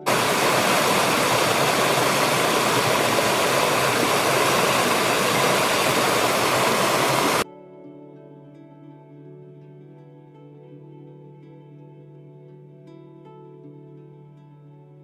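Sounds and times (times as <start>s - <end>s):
stream rushing over rocks: 0.0s - 7.4s.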